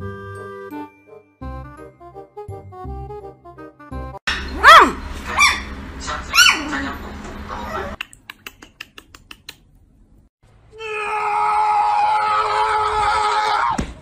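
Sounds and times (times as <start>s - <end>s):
puppy yipping: 4.3s - 6.8s.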